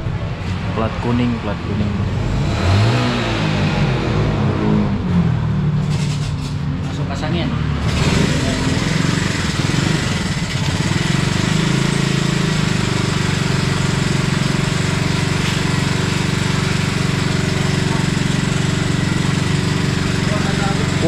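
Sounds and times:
motorcycle engine idling: 8.2 - 21.0.

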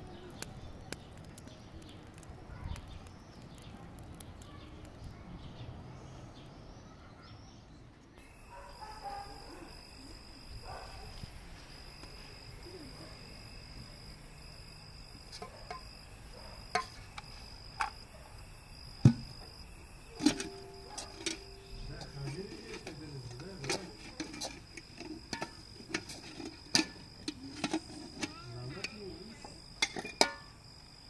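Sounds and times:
insects trilling: 8.2 - 31.0.

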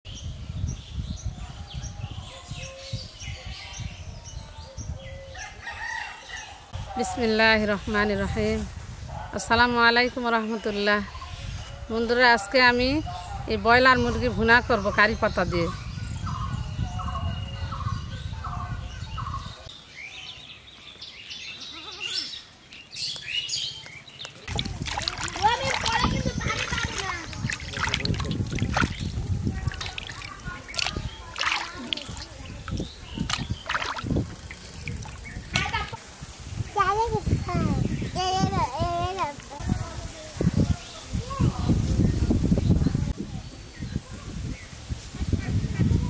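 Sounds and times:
small birds chirping: 9.6 - 45.9
high thin bird chirps: 24.5 - 35.9.

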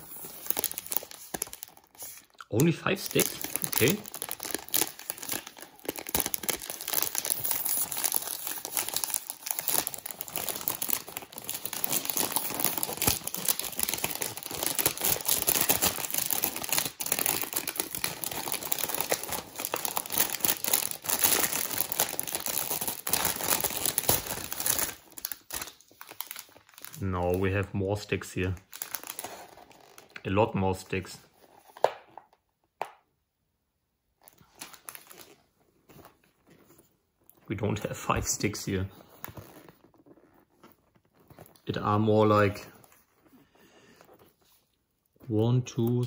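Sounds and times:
plastic bag tearing and crinkling: 0.0 - 27.4, 28.4 - 30.2, 34.4 - 35.4.

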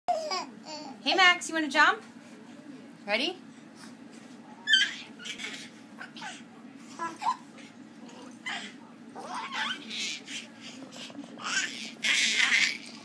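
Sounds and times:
baby squealing and babbling: 4.6 - 6.4, 8.5 - 10.4, 11.4 - 12.9.

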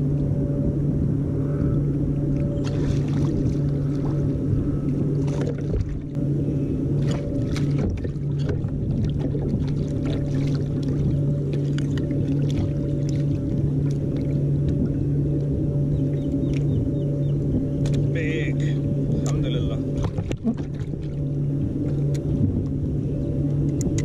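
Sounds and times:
steady low hum: 0.0 - 24.0
fish thrashing and splashing water: 2.6 - 4.3, 7.0 - 14.4.

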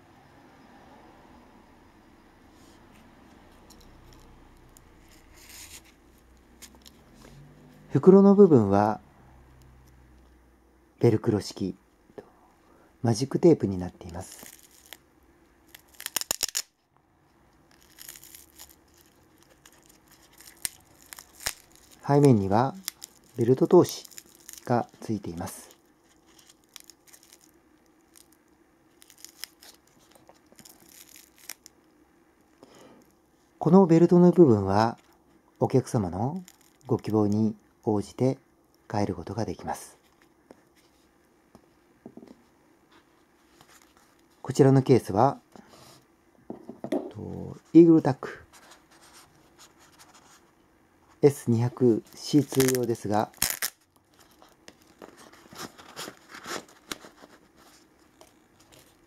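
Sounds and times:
rustling and scraping of holster: 5.0 - 6.0, 48.4 - 50.6, 54.1 - 59.0.

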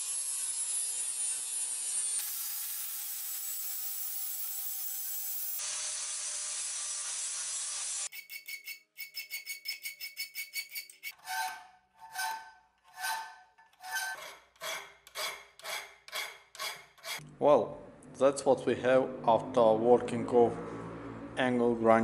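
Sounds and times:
angle grinder grinding steel: 0.0 - 17.2
file rasping across steel: 8.1 - 17.2.

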